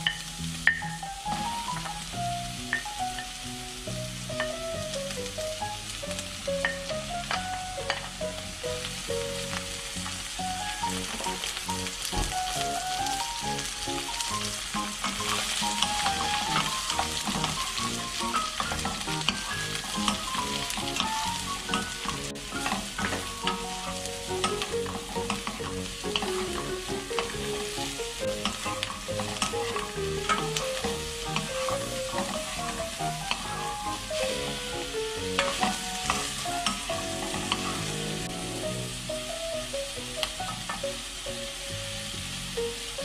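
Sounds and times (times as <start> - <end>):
mushrooms sizzling in oil: 0.0 - 43.0
wood clicking and scraping pan: 15.0 - 34.3.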